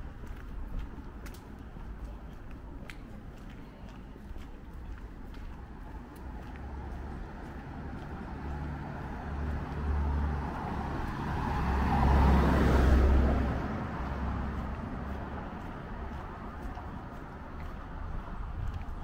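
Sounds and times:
motor vehicle passing: 5.6 - 19.0
steady low rumble: 13.3 - 19.0.

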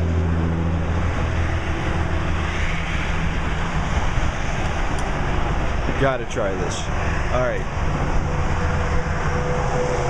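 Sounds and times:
engine low hum: 0.0 - 10.0
passing vehicles rushing: 0.0 - 10.0.

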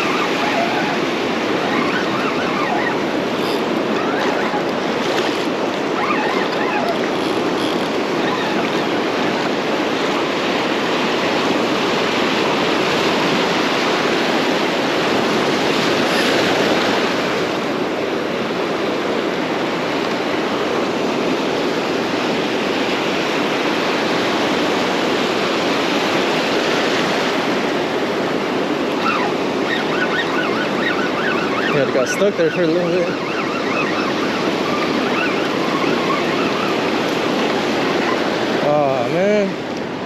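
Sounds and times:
ocean surf rushing: 0.0 - 40.0.

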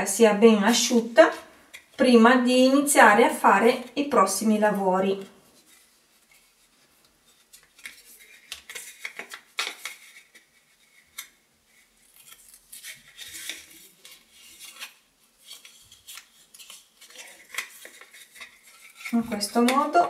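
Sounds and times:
tape and cardboard rustling: 5.5 - 20.0.

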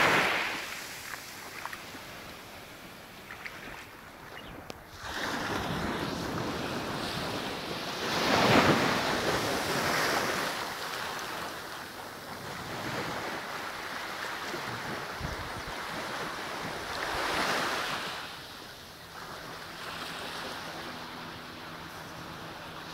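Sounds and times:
sea waves washing onto beach: 0.0 - 22.9
wind rumbling on microphone: 12.2 - 18.0.

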